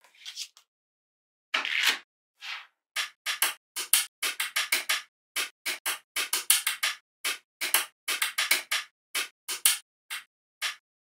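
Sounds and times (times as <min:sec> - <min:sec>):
magnetic balls clicking: 0:03.0 - 0:10.8.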